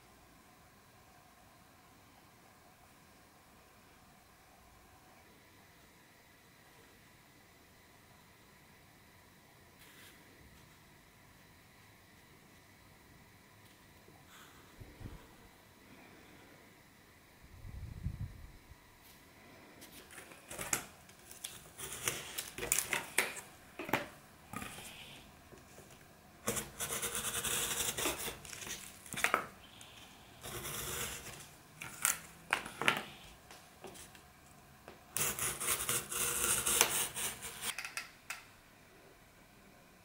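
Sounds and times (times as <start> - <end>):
utility knife cutting cardboard: 21.5 - 22.9, 26.5 - 29.2, 30.4 - 32.0, 35.2 - 37.7.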